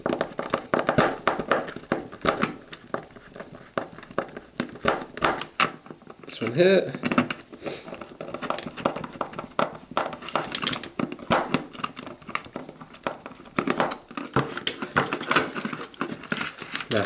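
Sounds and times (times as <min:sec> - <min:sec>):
plastic creaks and scrapes: 0:07.0 - 0:17.0.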